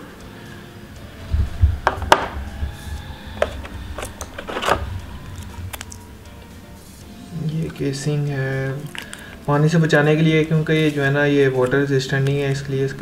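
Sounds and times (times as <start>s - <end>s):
low thumps: 1.0s - 8.9s.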